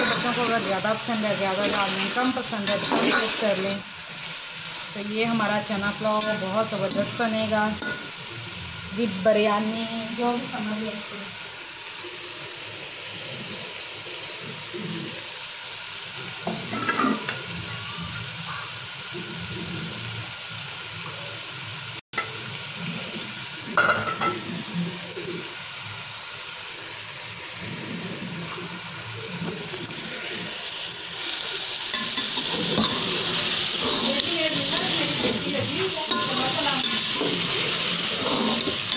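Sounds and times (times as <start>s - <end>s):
chickpeas sizzling in hot oil: 0.0s - 38.9s
metal utensil scraping a pot: 1.5s - 3.6s, 31.9s - 38.9s.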